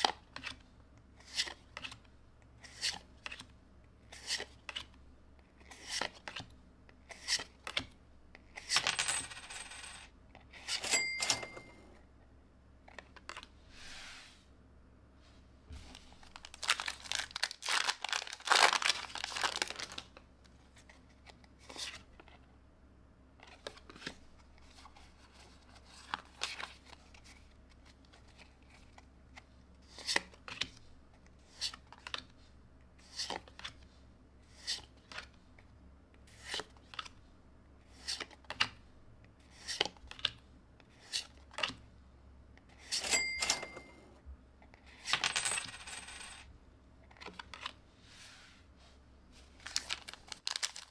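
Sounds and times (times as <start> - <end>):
foil wrapper tearing: 16.4 - 20.0, 49.7 - 50.9.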